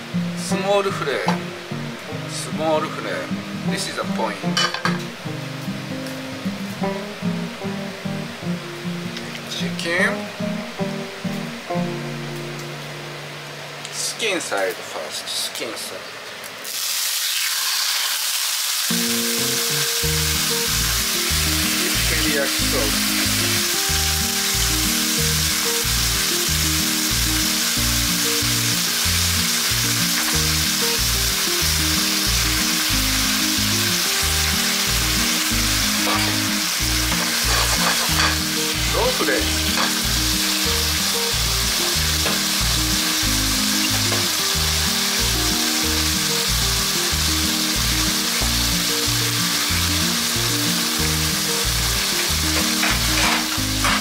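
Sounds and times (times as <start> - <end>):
chicken sizzling in a pan: 16.3 - 54.0.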